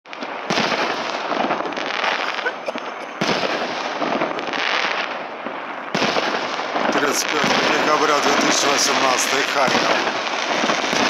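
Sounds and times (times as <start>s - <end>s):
fireworks crackling and popping: 0.1s - 11.0s.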